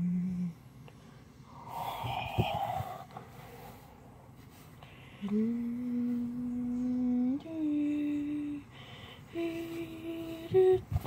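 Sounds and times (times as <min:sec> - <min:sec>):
person humming: 0:00.0 - 0:00.6, 0:01.5 - 0:03.1, 0:05.0 - 0:11.0.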